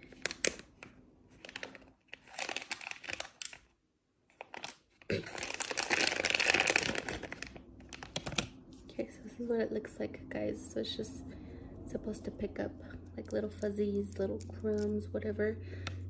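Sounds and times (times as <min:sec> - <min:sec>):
plastic pouch crinkling: 0:00.0 - 0:08.7.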